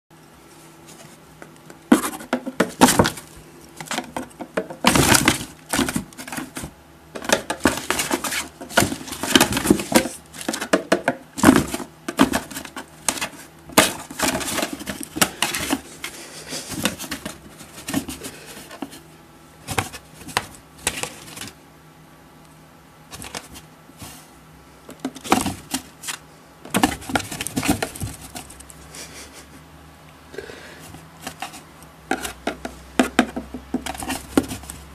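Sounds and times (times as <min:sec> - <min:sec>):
cat scratching inside cardboard box: 0:01.9 - 0:06.7, 0:07.4 - 0:10.7, 0:30.9 - 0:34.9.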